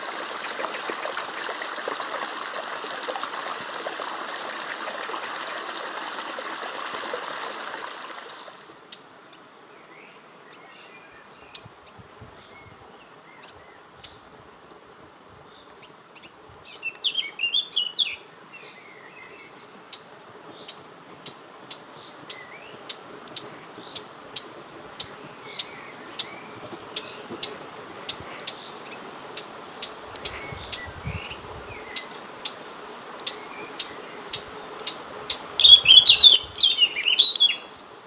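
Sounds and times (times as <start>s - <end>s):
stream rushing: 0.0s - 8.9s, 20.9s - 38.0s
birds chirping: 0.0s - 9.0s, 33.2s - 37.9s.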